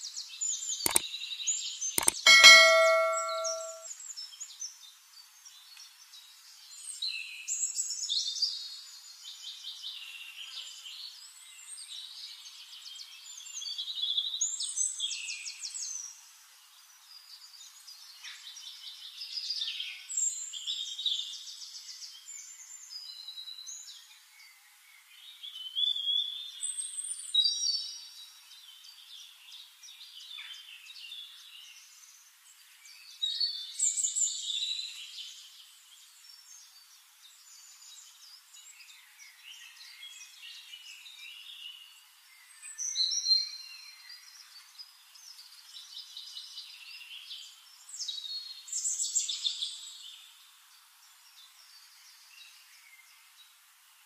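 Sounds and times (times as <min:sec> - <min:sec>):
sharp clicks: 0:02.0 - 0:03.8
bright ringing ding: 0:02.0 - 0:03.9.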